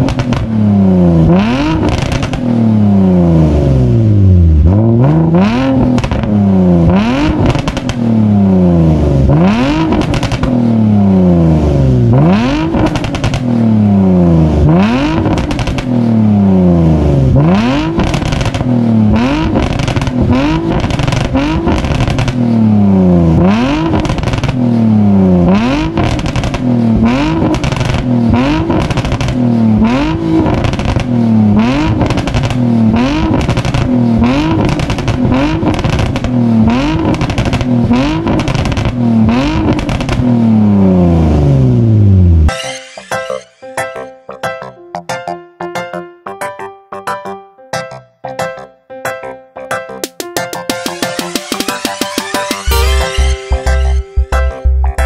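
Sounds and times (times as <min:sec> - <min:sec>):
car engine revving: 0:00.0 - 0:42.5.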